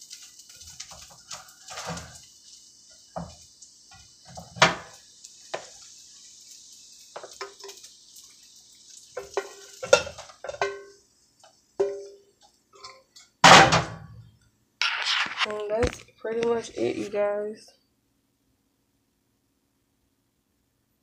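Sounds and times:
faint sizzle from pan: 0.0 - 18.0
metal spatula scraping a frying pan: 0.5 - 2.2, 9.2 - 11.0, 14.8 - 15.5.

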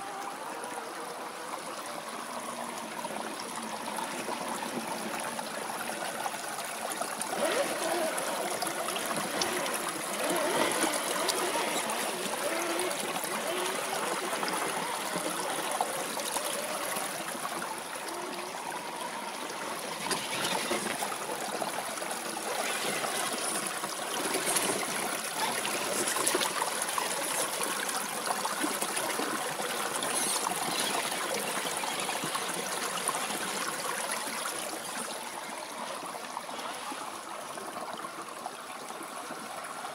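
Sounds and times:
creek babbling over stones: 0.0 - 39.9.

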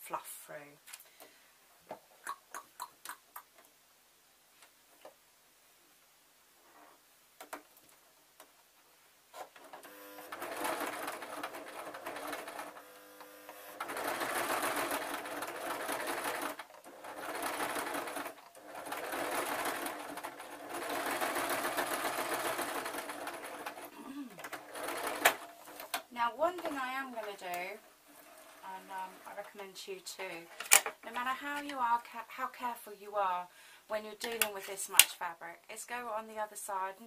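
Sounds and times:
sewing machine stitching: 9.6 - 26.0, 26.6 - 29.6.

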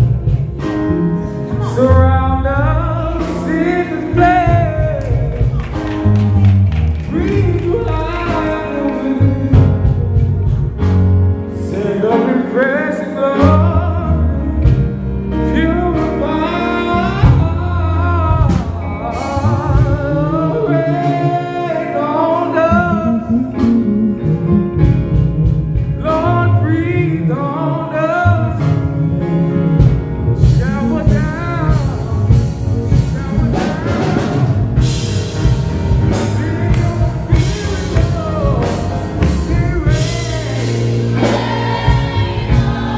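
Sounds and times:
band playing gospel music: 0.0 - 42.9
man singing into a microphone: 1.5 - 5.6, 7.1 - 10.2, 11.6 - 25.0, 25.8 - 29.2, 30.4 - 35.0, 36.0 - 41.3.

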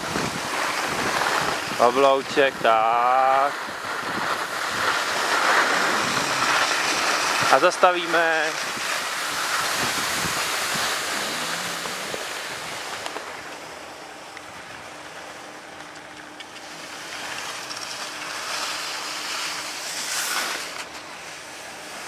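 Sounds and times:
wind on microphone: 0.0 - 1.9, 3.6 - 7.5, 8.6 - 13.0
skis sliding over snow: 0.0 - 13.4, 16.6 - 22.0.

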